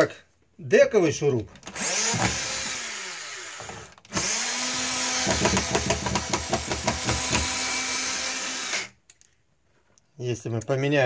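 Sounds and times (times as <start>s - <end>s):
cordless drill driving screw: 1.6s - 9.0s.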